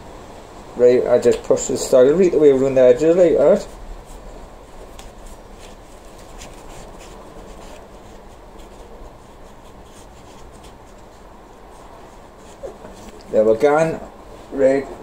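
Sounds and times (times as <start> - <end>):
faint steady background noise: 0.0 - 15.0
scratchy rustling of soil: 1.1 - 15.0.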